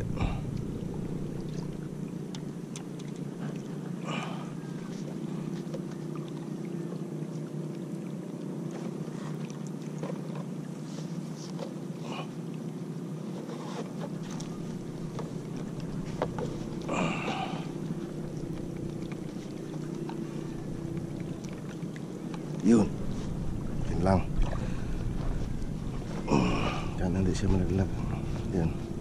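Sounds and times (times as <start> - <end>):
distant boat engine drone: 0.0 - 29.0
rustling scrape: 13.3 - 14.7.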